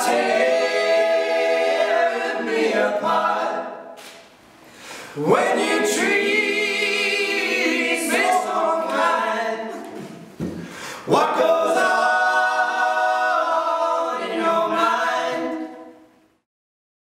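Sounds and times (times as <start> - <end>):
men singing in harmony: 5.2 - 9.8, 11.0 - 15.7.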